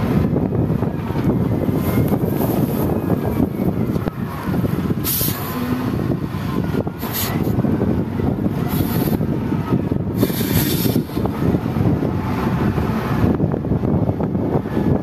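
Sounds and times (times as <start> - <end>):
diesel engine running hard: 0.0 - 15.0
short bursts of hiss: 10.2 - 11.2.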